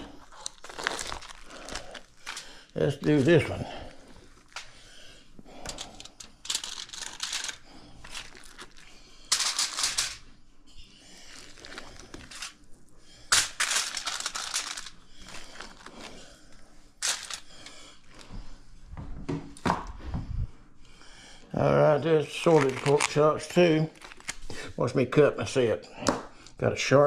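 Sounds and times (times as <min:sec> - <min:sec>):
plastic cling wrap crinkling: 0:00.0 - 0:04.9, 0:05.6 - 0:10.2, 0:11.1 - 0:12.7, 0:13.3 - 0:16.3, 0:17.0 - 0:18.2, 0:22.2 - 0:24.7.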